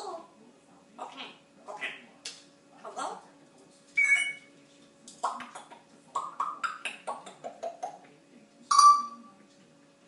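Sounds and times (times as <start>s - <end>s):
parrot loud whistle: 4.0s - 4.4s.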